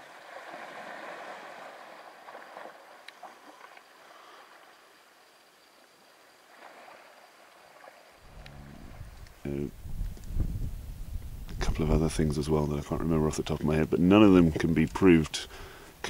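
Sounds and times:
water splashing and sloshing: 0:00.0 - 0:09.4.

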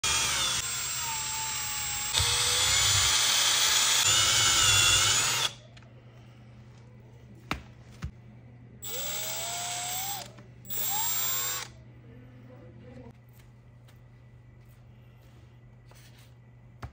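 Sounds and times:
drill hole saw cutting meat: 0:00.0 - 0:05.6
drill clicks: 0:08.8 - 0:11.7.

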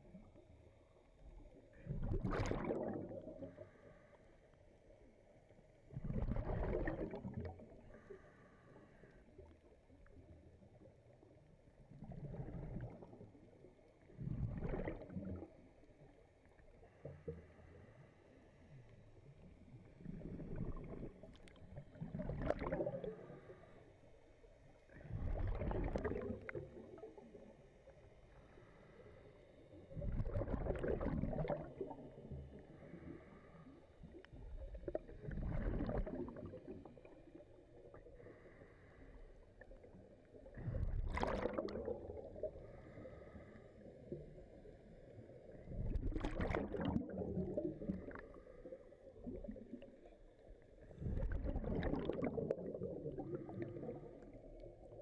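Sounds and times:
underwater regulator bubbles: 0:01.8 - 0:03.7, 0:05.9 - 0:08.0, 0:14.2 - 0:15.7, 0:20.0 - 0:23.6, 0:25.0 - 0:27.5, 0:29.9 - 0:33.4, 0:34.0 - 0:38.6, 0:39.6 - 0:55.0.

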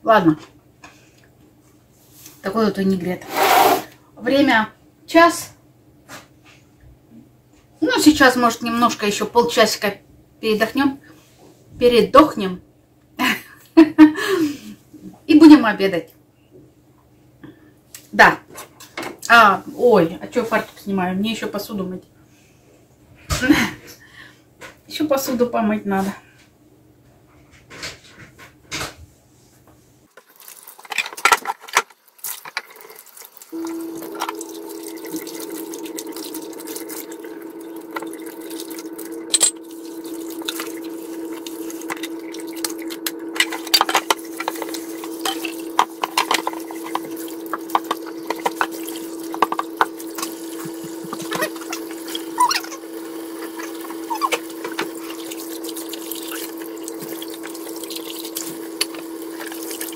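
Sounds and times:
sponge scrubbing: 0:03.2 - 0:03.9, 0:39.9 - 0:59.9
tap water running into sink: 0:32.1 - 0:59.9
steady hum: 0:33.5 - 0:59.9.

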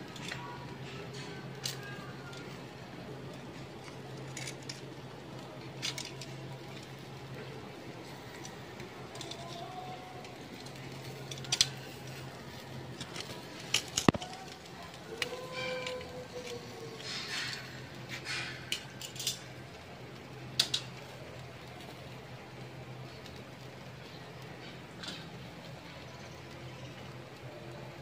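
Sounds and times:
metal tongs clicking on grill: 0:00.1 - 0:02.6, 0:03.3 - 0:07.4, 0:08.0 - 0:22.0.

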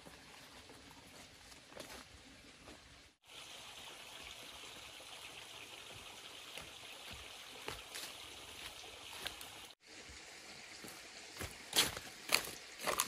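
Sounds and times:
footsteps on dry leaves: 0:06.6 - 0:09.8, 0:10.8 - 0:13.0.

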